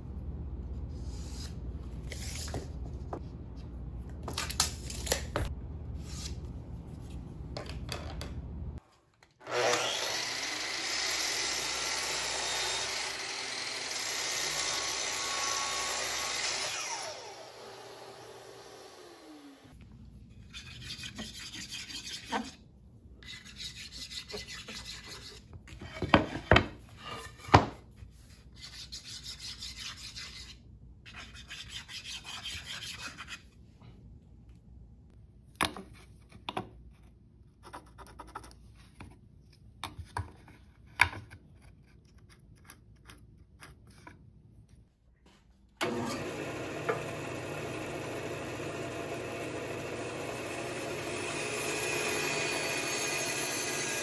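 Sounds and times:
bandsaw running: 9.4 - 19.7, 45.8 - 54.0.

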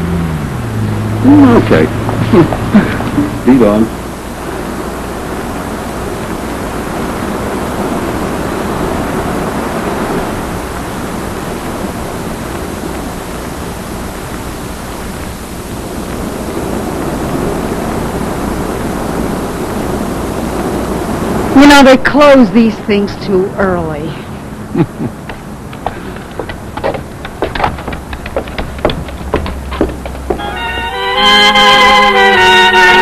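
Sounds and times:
ocean surf rushing: 0.0 - 33.0.

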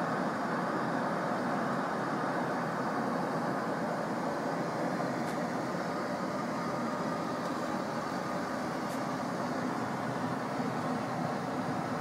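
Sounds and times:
airliner cabin engine hum: 0.0 - 12.0.

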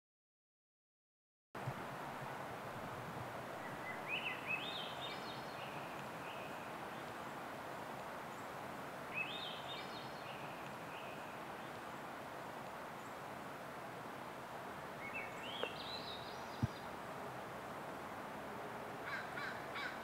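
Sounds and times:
outdoor background noise: 1.6 - 20.0
songbird singing: 3.3 - 18.1.

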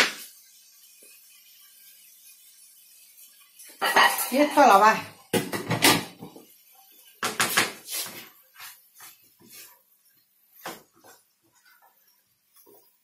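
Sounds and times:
utensil scraping a frying pan: 1.7 - 10.2
utensils and dishes clattering: 3.6 - 6.4.

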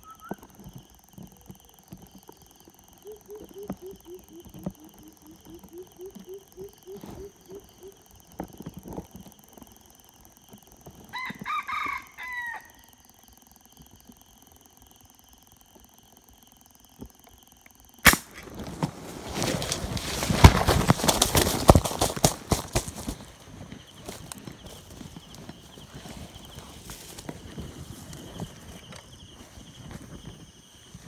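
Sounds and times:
low hoots: 2.9 - 8.2
rooster crowing: 11.1 - 13.1.

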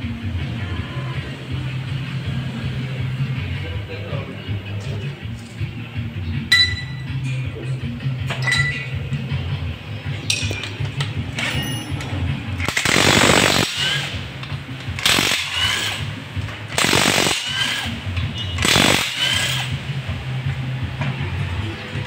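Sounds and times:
power tool bursts: 12.6 - 14.2, 15.0 - 16.1, 16.8 - 19.8.

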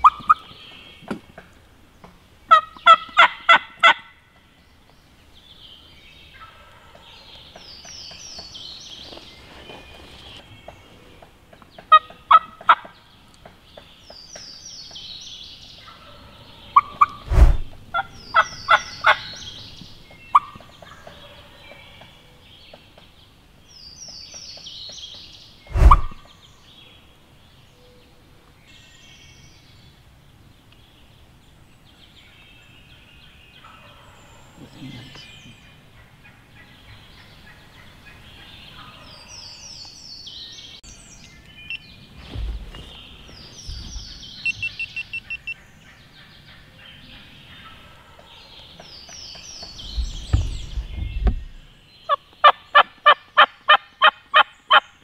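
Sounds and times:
turkey gobbling: 0.0 - 0.4, 2.5 - 4.1
songbirds singing: 0.0 - 55.0.

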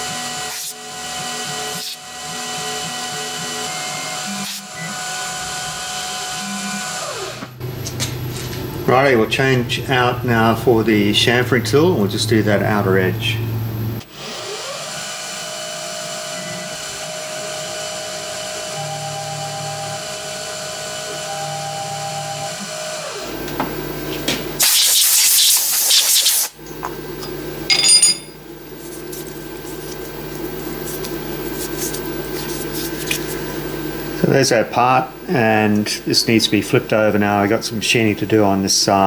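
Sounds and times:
milling spindle whine: 0.0 - 7.1, 28.4 - 39.0
low machine hum: 7.6 - 14.1, 26.6 - 39.0
loud hiss: 24.6 - 26.6.

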